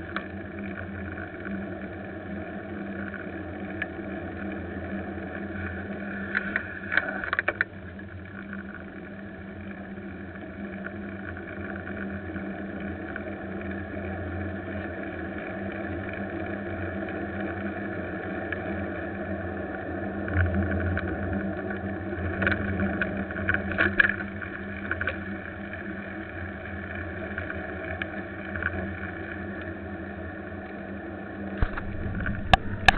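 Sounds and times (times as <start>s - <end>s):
vehicle road noise: 31.6s - 32.9s.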